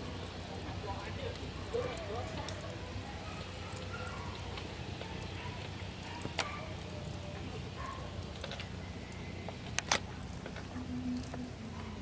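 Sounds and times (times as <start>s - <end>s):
campfire crackling: 0.0s - 12.0s.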